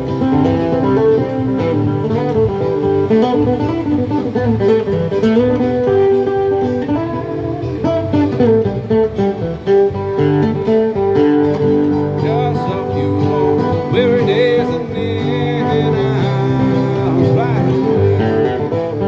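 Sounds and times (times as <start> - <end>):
acoustic guitar strumming: 0.0 - 19.0
man singing: 12.0 - 19.0.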